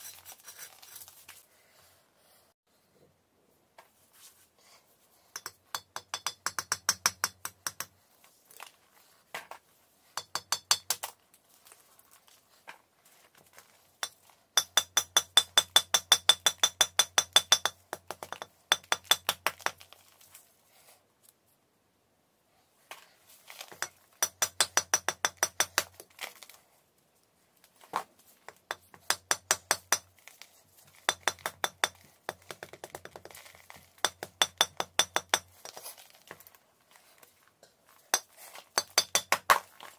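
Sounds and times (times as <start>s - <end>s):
hammer tapping chalk: 5.4s - 8.0s, 10.2s - 11.0s, 14.0s - 19.8s, 23.7s - 26.0s, 28.5s - 30.1s, 30.9s - 33.4s, 34.0s - 35.9s, 38.1s - 39.6s.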